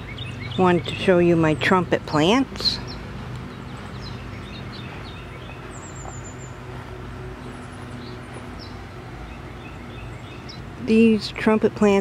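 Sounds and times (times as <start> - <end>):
small birds chirping: 0.0 - 12.0
steady low hum: 0.0 - 12.0.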